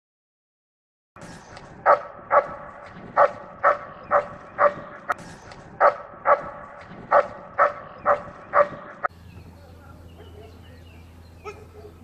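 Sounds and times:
dog barking loudly: 1.8s - 5.2s, 5.8s - 9.1s, 11.4s - 12.0s.

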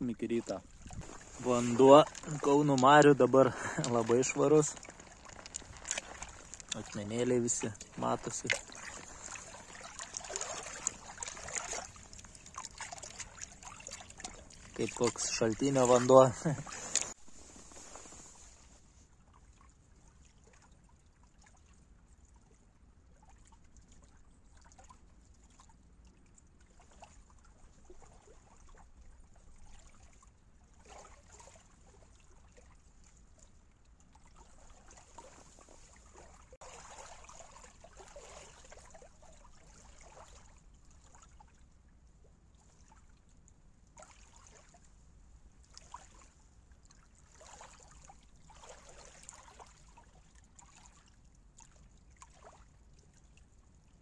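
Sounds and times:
small waves lapping on pebbles: 0.2s - 18.9s, 34.2s - 41.4s, 47.1s - 52.6s.

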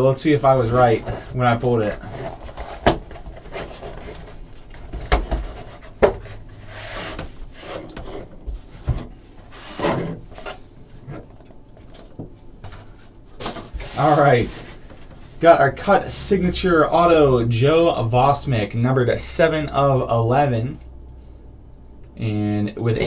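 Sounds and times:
cardboard sliding and rubbing: 0.6s - 11.3s, 12.7s - 14.8s.

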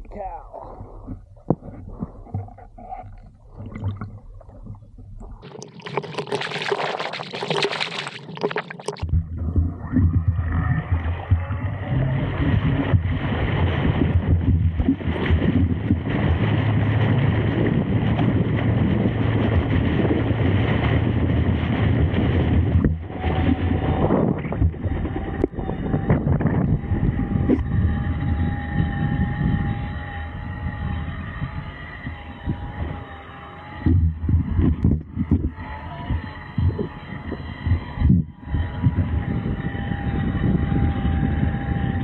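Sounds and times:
water splashing: 0.7s - 25.6s
rush of water and wind: 10.4s - 33.1s.

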